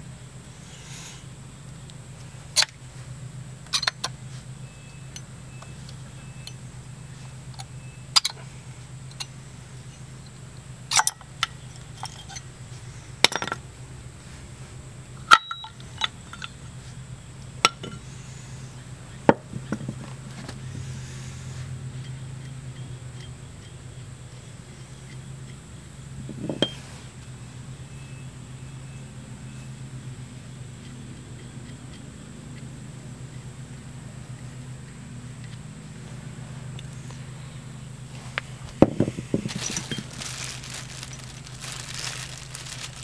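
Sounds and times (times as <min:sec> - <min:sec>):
steady low hum: 0:00.0 - 0:43.0
metal tools clinking and tapping: 0:03.7 - 0:04.1, 0:09.9 - 0:12.5, 0:13.2 - 0:13.6, 0:15.3 - 0:16.7, 0:17.6 - 0:18.0, 0:26.4 - 0:26.8, 0:38.8 - 0:43.0.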